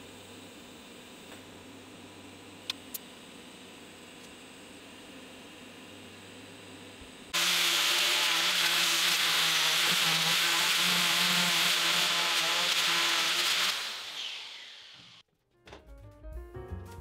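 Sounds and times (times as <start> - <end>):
angle grinder grinding steel: 7.4 - 15.2.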